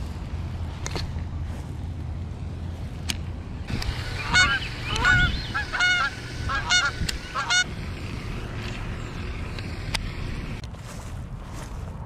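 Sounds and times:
goose honking: 3.8s - 7.7s.

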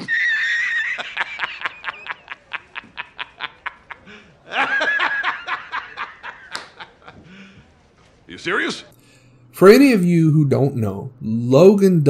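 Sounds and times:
man laughing: 0.0s - 7.6s.

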